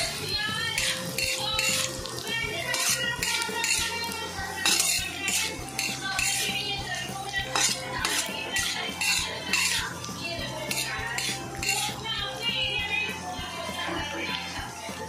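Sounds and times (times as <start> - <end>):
metal spatula scraping in pan: 0.0 - 12.1
food frying in oil: 0.0 - 15.0.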